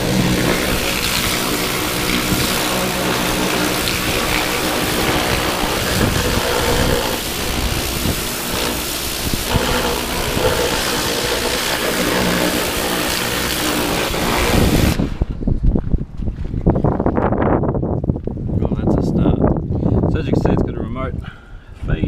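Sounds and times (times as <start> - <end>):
pressure washer jet hissing: 0.0 - 15.2
mechanical hum: 0.0 - 16.5
low uneven rumbling: 0.0 - 16.8.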